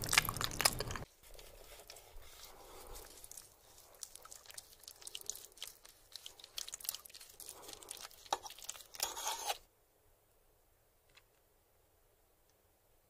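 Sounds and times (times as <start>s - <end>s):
fork cutting through lasagna: 0.0s - 9.6s.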